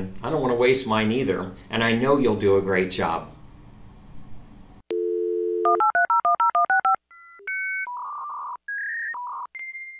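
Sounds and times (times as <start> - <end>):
telephone dial tone: 4.9 - 8.5
electronic beeps: 7.2 - 9.9.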